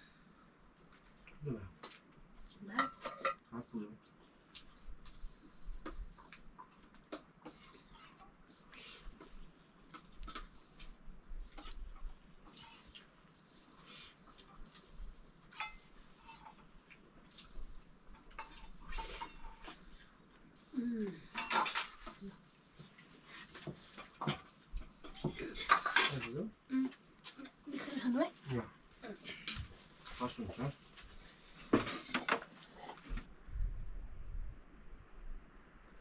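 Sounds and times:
clatter of utensils: 2.7 - 3.6, 15.5 - 16.6, 18.1 - 19.8, 21.2 - 22.3, 23.5 - 26.5
plates and utensils clinking: 2.8 - 3.5, 21.3 - 22.2, 23.6 - 26.5.

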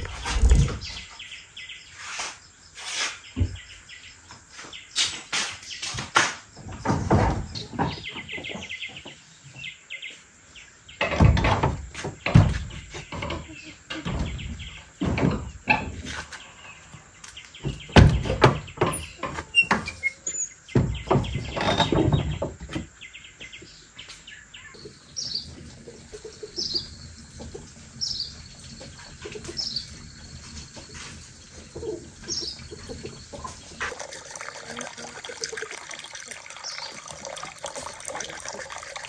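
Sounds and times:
small bird chirping: 23.1 - 34.4.

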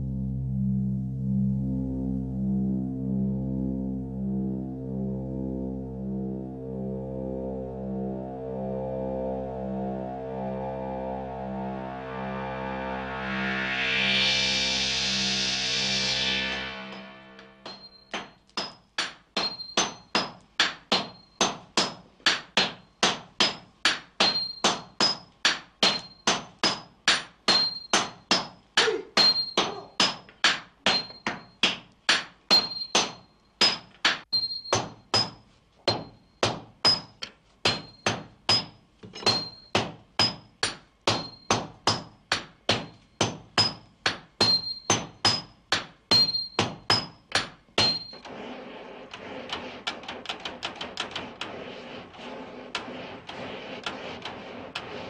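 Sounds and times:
hammers ringing on anvil: 17.6 - 28.6, 29.2 - 31.8, 32.5 - 48.2.

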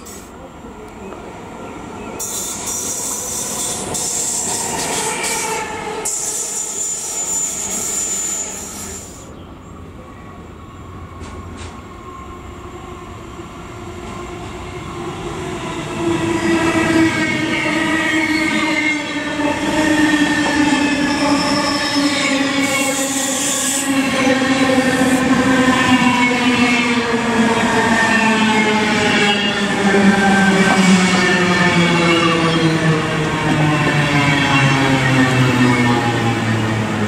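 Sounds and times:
train rumbling past on rails: 0.0 - 37.0.

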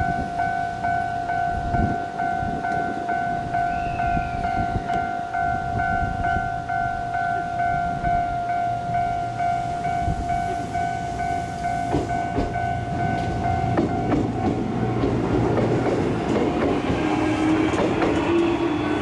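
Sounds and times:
level crossing alarm bell: 0.0 - 15.2
electric train rumbling: 0.0 - 19.0.

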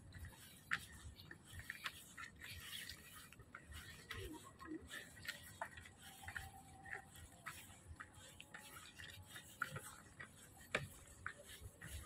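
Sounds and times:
footsteps on bamboo boardwalk: 0.0 - 12.0.

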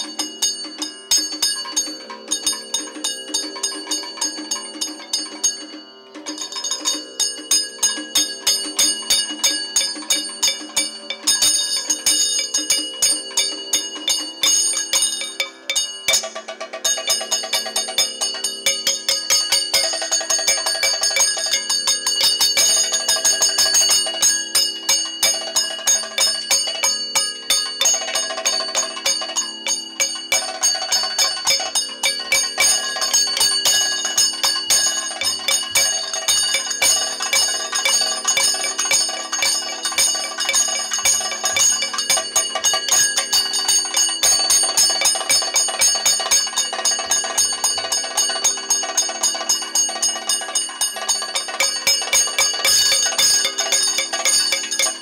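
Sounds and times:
cymbals ringing: 0.0 - 55.0
metallic gong ringing: 0.0 - 55.0.

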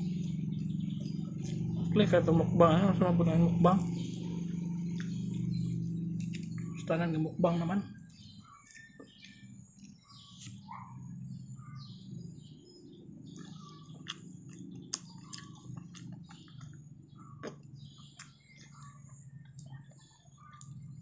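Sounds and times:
small birds chirping: 0.0 - 21.0
man chewing and lip smacking: 1.0 - 1.8, 4.4 - 6.8, 8.6 - 10.6, 13.3 - 20.8.

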